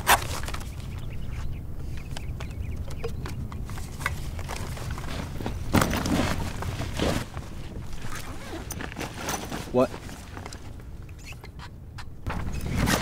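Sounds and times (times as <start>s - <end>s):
backpack rustling on rocks: 0.0s - 1.4s, 3.6s - 11.1s.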